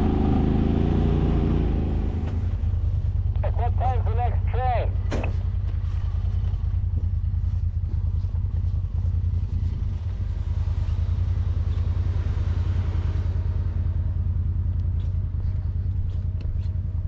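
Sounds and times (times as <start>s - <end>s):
engine droning with rapid pulse: 0.0s - 17.0s.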